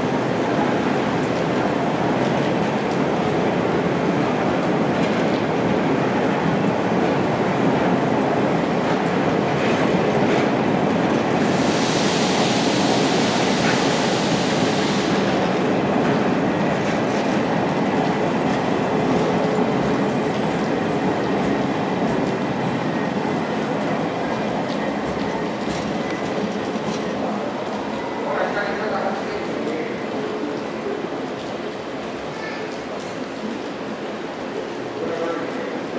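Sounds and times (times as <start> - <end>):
train wheels rumbling on rails: 0.0 - 35.9
high steam hiss: 11.2 - 15.9.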